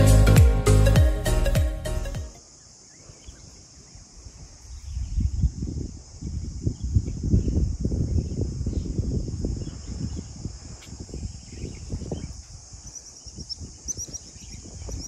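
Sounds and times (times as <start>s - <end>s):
wind gusting on microphone: 3.9s - 15.0s
bird chirping: 11.4s - 15.0s.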